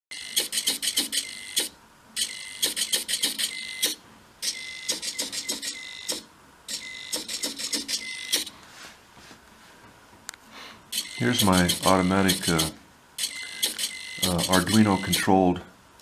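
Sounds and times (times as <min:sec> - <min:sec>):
morse code beeps: 0:00.1 - 0:08.5, 0:11.0 - 0:15.3
servo clicking: 0:00.1 - 0:08.5, 0:10.9 - 0:15.3.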